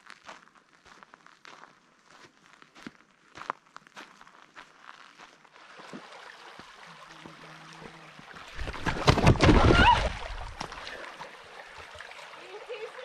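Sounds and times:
river running: 0:05.4 - 0:13.0.

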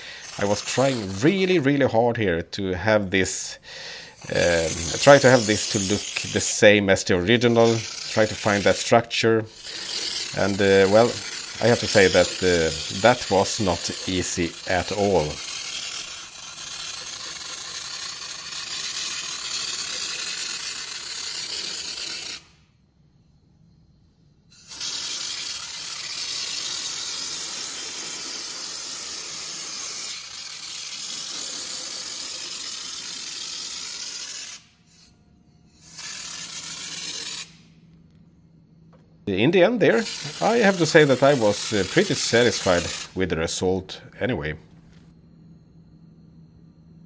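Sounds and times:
air spray gun hissing: 0:00.0 - 0:01.6, 0:03.9 - 0:06.6, 0:07.2 - 0:22.5, 0:24.5 - 0:35.1, 0:35.8 - 0:37.6, 0:39.9 - 0:43.2.

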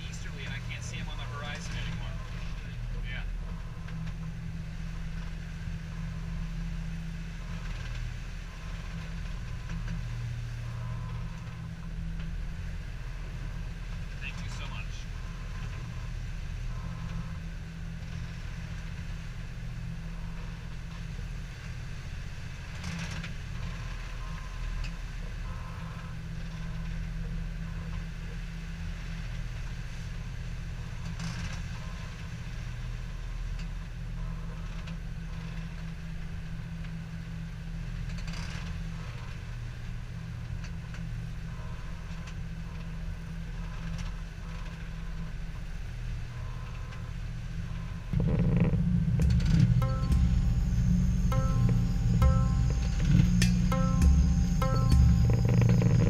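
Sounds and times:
diesel engine droning: 0:00.0 - 0:29.0, 0:45.9 - 0:56.0.

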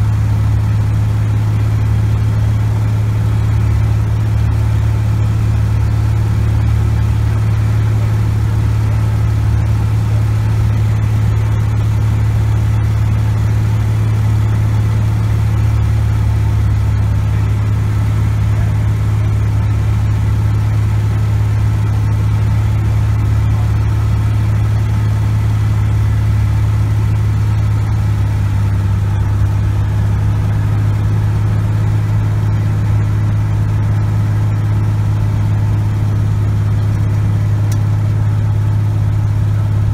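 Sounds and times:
aircraft engine and propeller droning: 0:00.0 - 0:39.9.

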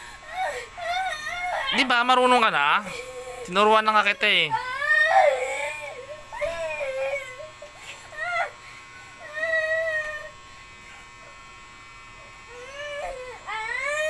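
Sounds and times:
boy crying in wails: 0:00.1 - 0:08.6, 0:09.2 - 0:10.4, 0:12.5 - 0:14.0.

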